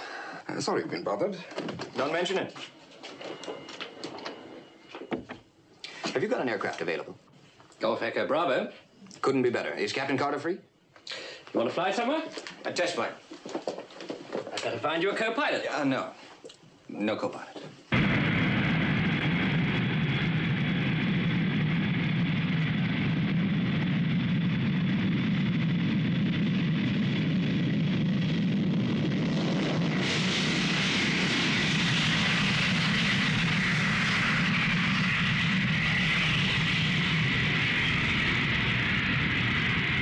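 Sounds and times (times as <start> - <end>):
jet engines roaring with high whine: 1.6 - 5.8, 18.0 - 40.0.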